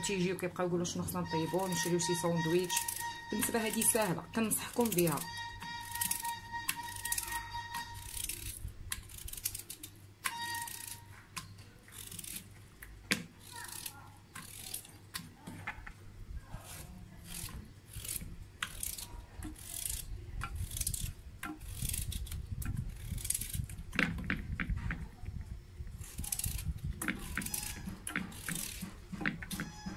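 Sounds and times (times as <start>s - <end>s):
knife slicing potato: 1.4s - 12.5s, 13.1s - 15.7s, 16.5s - 23.7s, 26.0s - 29.9s.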